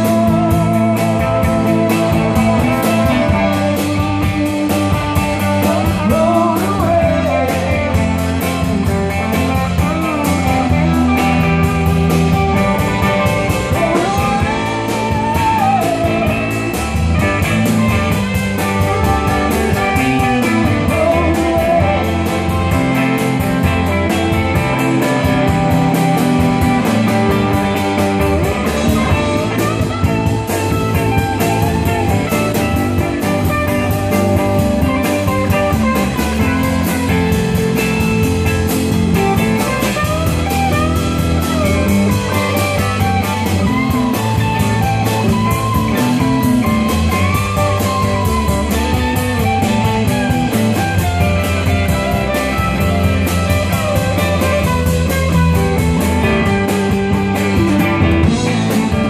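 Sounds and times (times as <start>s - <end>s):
bending lead guitar line: 0.0s - 59.0s
drum kit: 0.0s - 59.0s
electric bass: 0.0s - 59.0s
electric guitars: 0.0s - 59.0s.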